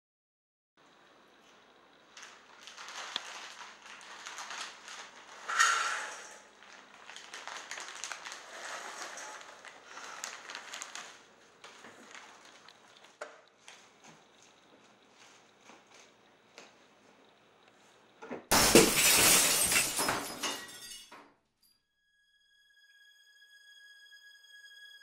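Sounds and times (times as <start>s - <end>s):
snack bag crinkling: 2.1s - 13.8s.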